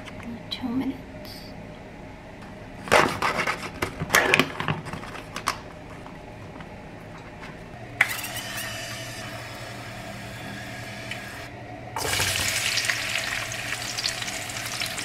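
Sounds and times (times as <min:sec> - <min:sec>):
cooking spray hissing: 0:08.1 - 0:15.0.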